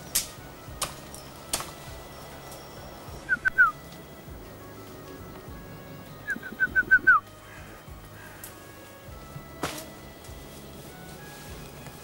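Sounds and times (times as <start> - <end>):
soft background music: 0.0 - 12.0
bird chirping falling notes: 4.8 - 7.3.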